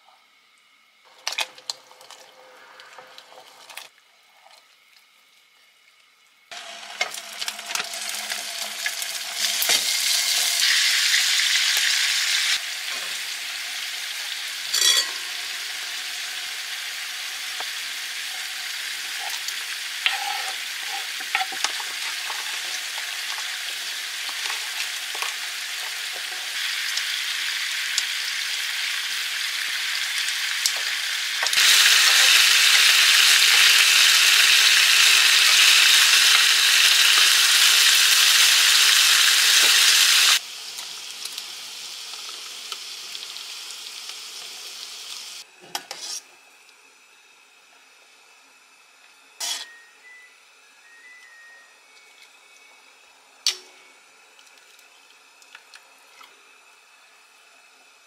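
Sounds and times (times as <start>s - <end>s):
meat sizzling in a pan: 6.5s - 45.4s.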